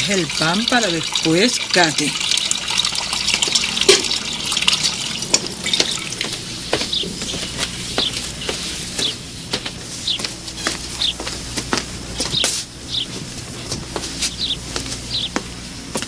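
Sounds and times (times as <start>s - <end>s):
water trickling and dripping: 0.0s - 6.4s
sharp drip plinks: 2.2s - 6.3s.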